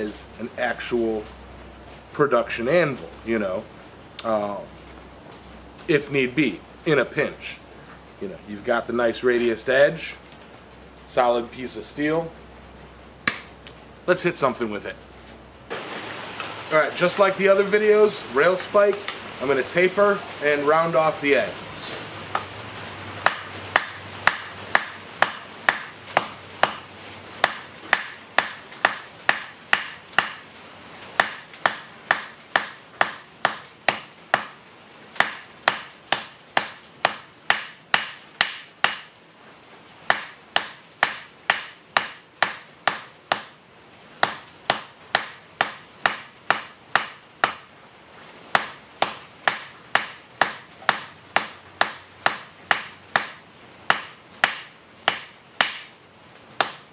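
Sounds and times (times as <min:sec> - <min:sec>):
hammer striking metal on anvil: 0:48.6 - 0:55.9.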